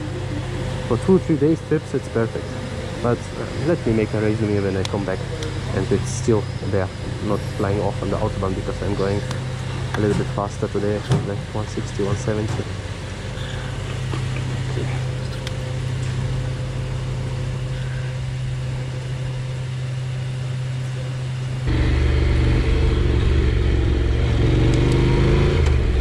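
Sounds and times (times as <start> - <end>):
motorcycle engine accelerating: 12.0 - 26.0.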